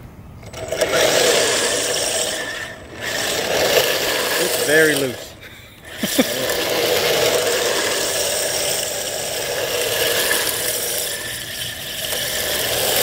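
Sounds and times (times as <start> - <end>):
drive motor whine: 0.0 - 13.0
plastic wheels rattling on asphalt: 0.4 - 13.0.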